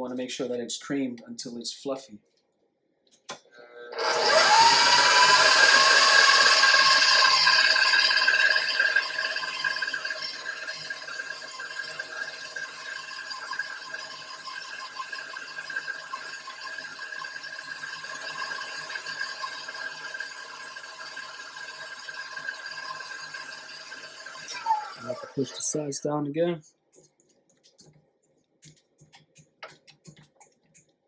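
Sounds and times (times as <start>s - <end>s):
stand mixer motor whine: 3.9s - 25.6s.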